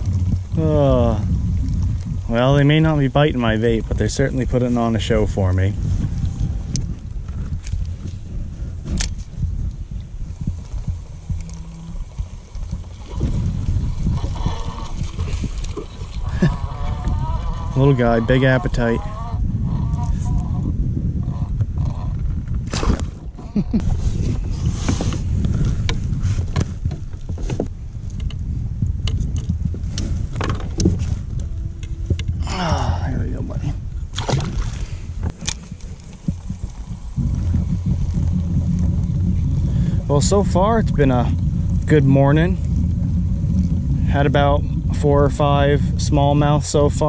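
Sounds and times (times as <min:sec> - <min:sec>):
steady low rumble: 0:00.0 - 0:47.0
wind buffeting microphone: 0:00.0 - 0:47.0.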